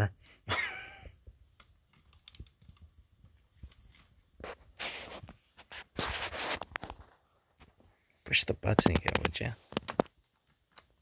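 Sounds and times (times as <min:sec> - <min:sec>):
rustling scrapes: 0:03.5 - 0:07.8.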